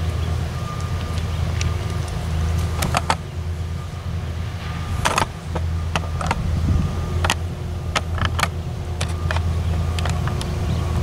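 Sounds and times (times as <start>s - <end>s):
engine rumbling: 0.0s - 11.0s
sharp clicks and knocks: 1.1s - 3.2s, 5.0s - 6.4s, 7.2s - 10.6s.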